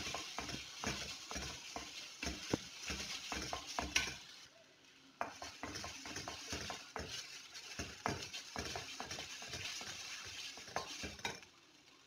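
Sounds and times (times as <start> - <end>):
wooden spatula scraping metal pan: 0.0 - 4.4, 5.2 - 11.4
soft sizzle: 0.0 - 12.0
spatula knocking against pan: 5.2 - 7.2.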